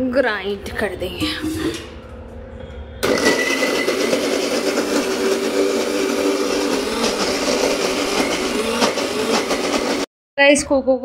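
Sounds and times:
mixer grinder motor grinding: 3.0s - 10.1s.

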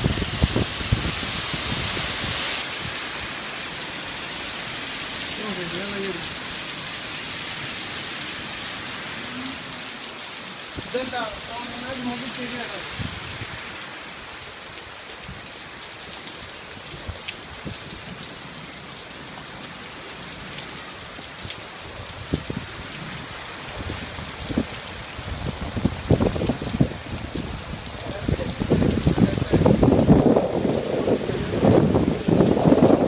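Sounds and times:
wind buffeting microphone: 0.0s - 2.6s, 22.1s - 33.0s
rain hissing on road: 0.0s - 33.0s.

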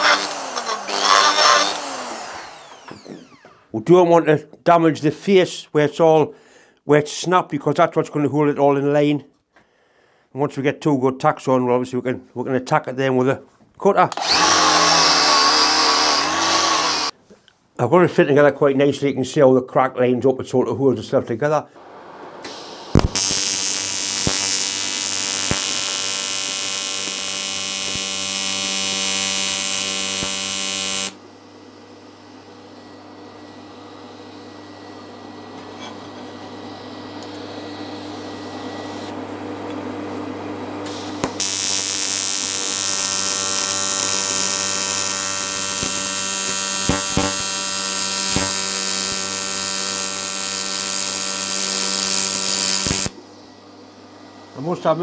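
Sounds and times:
welding arc buzzing: 0.0s - 3.5s, 14.2s - 17.1s, 22.4s - 31.2s, 40.8s - 53.2s.

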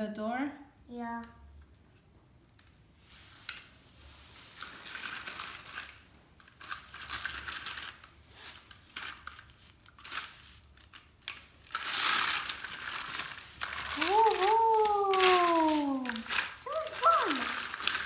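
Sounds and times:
toy cars clattering on plastic track: 4.6s - 18.0s.

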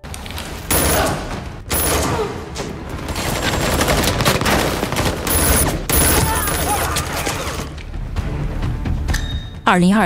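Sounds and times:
rapid gunfire: 3.1s - 7.3s.

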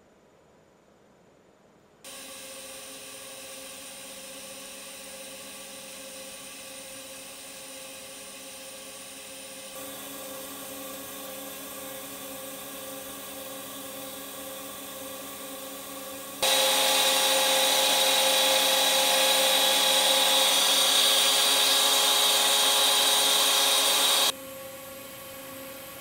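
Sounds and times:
welding machine whine: 2.1s - 26.0s
machine hiss: 16.4s - 24.3s.

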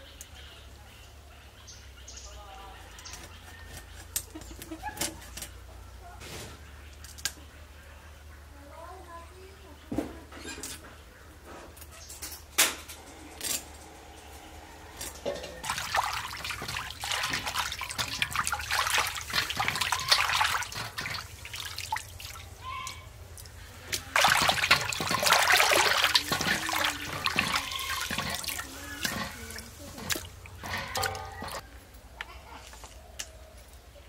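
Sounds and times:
water splashing and pouring: 15.1s - 31.6s.

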